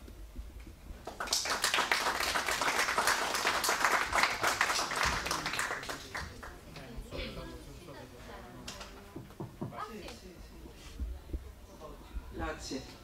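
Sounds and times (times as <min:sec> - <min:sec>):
audience applauding: 0:01.0 - 0:06.6.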